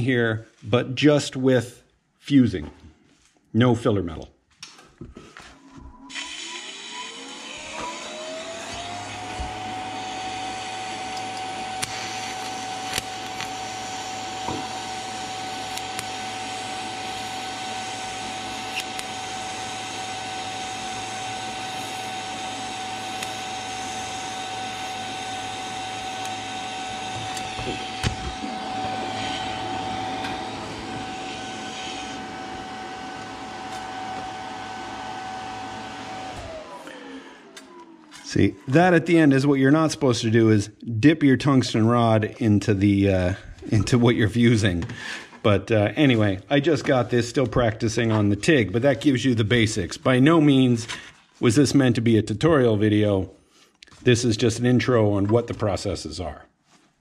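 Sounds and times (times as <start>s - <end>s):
welding whine: 5.7s - 39.5s
welding arc hiss and buzz: 10.8s - 34.3s.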